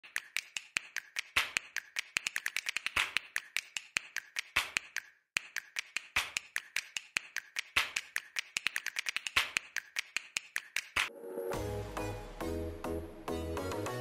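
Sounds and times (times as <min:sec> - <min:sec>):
rapid clicking and ticking: 0:00.0 - 0:11.1.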